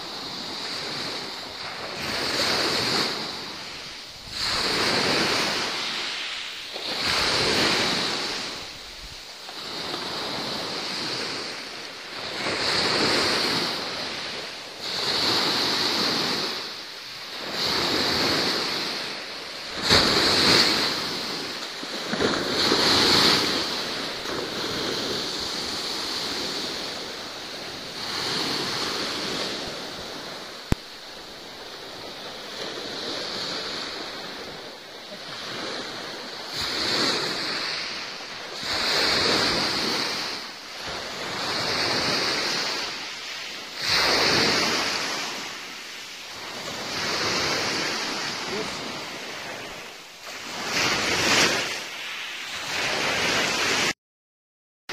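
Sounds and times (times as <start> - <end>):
sea surf washing in: 0.0 - 54.0.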